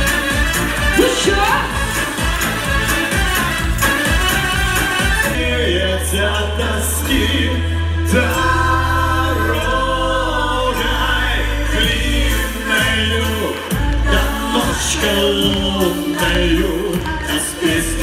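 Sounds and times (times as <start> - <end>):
steady bass: 0.0 - 18.0
voices singing together: 5.3 - 18.0.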